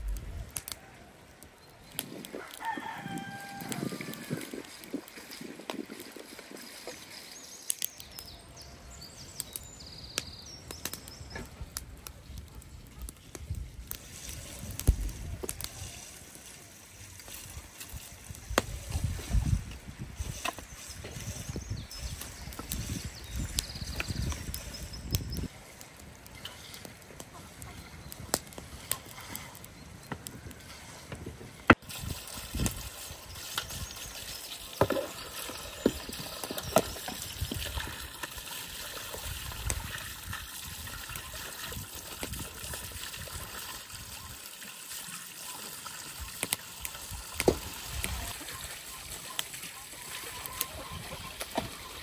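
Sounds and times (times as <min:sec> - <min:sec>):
hose water splashing into basin: 0:02.0 - 0:07.8, 0:31.7 - 0:52.0.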